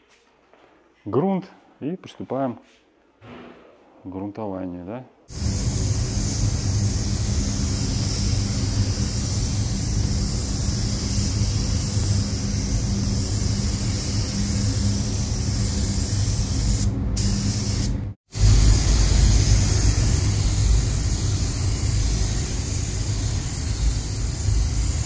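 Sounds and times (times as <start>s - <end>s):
spray gun hissing: 5.3s - 25.0s
steady low hum: 5.3s - 25.0s.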